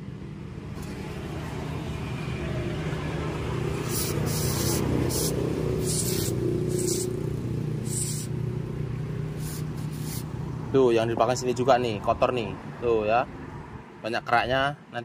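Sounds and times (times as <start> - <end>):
aerosol spray hissing: 3.8 - 7.2, 7.8 - 8.4, 9.3 - 10.3.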